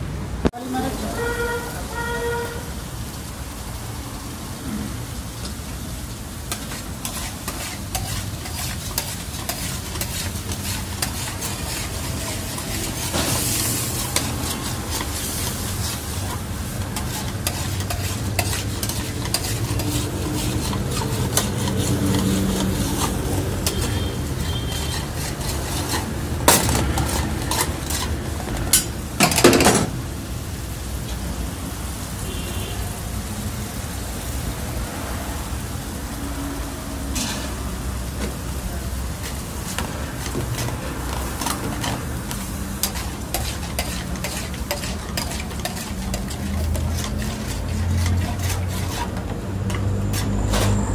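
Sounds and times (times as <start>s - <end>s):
food sizzling and bubbling in a wok: 0.0s - 50.9s
metal spatula scraping a pan: 6.5s - 29.9s, 37.1s - 37.8s, 39.2s - 50.9s.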